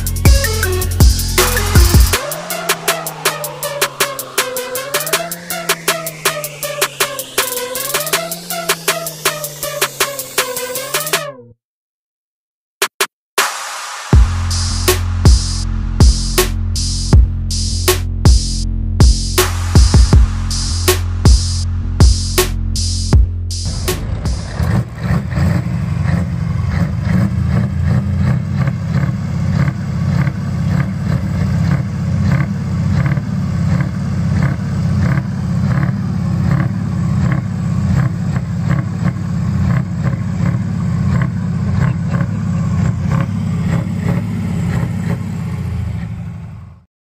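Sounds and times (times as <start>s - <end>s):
truck diesel engine rumbling: 0.0s - 11.1s, 14.2s - 46.8s.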